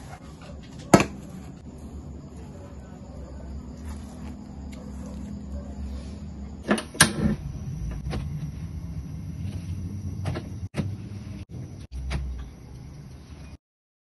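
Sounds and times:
low steady rumble: 0:00.0 - 0:12.8
leaf rustling: 0:01.3 - 0:06.1.

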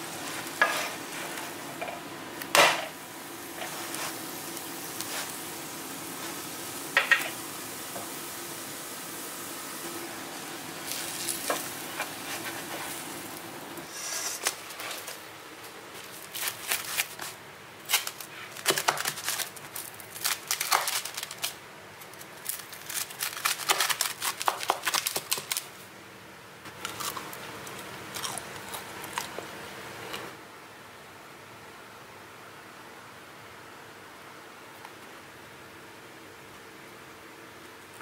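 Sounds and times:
bread sizzling in a pan: 0:00.0 - 0:01.9, 0:02.5 - 0:15.2
knife cutting crisp crust: 0:16.2 - 0:21.4, 0:22.5 - 0:25.6.

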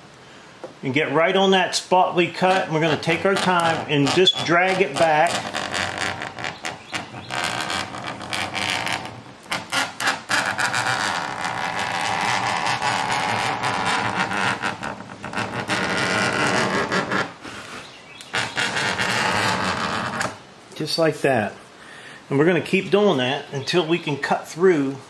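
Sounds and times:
knife scraping acrylic sheet: 0:02.2 - 0:20.4.

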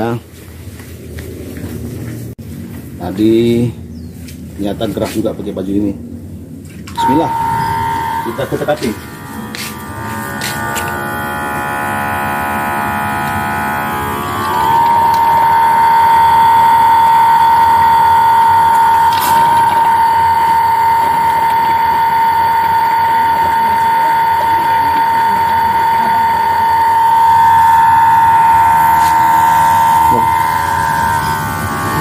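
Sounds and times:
suction pump whining: 0:06.9 - 0:32.0.

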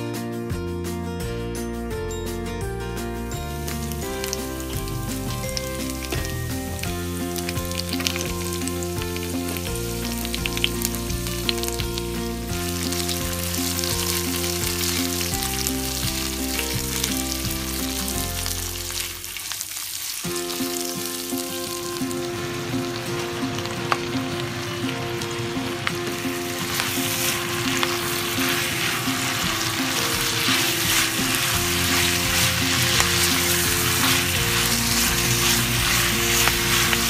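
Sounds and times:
soft background music: 0:00.0 - 0:19.4, 0:20.3 - 0:37.0
onions sizzling in hot oil: 0:03.4 - 0:37.0
spatula stirring in pot: 0:26.1 - 0:37.0.

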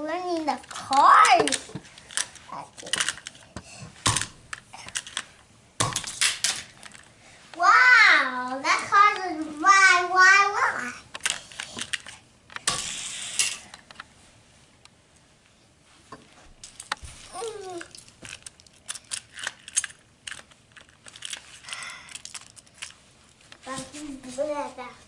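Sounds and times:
toy cars clicking and rattling: 0:00.3 - 0:03.4, 0:04.1 - 0:05.3, 0:11.1 - 0:13.7, 0:16.6 - 0:23.0.

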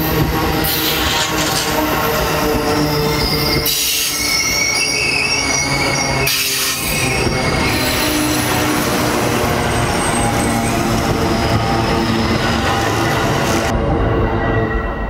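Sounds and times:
train wheels rumbling on rail: 0:00.0 - 0:15.0
wheel squeal: 0:02.7 - 0:08.8.

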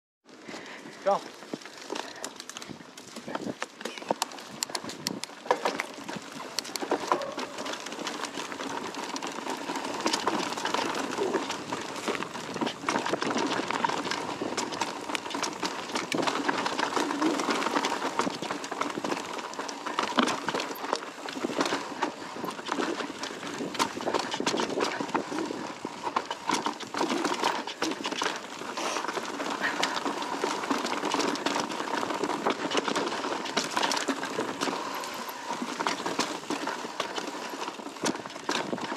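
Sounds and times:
bike tyres rolling over dirt and rock: 0:00.3 - 0:38.9
bike rattling and knocking: 0:00.4 - 0:38.9.

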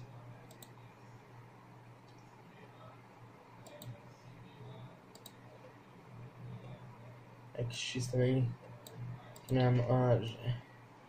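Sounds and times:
low electrical hum: 0:00.0 - 0:11.0
faint short clicks: 0:05.1 - 0:05.4.

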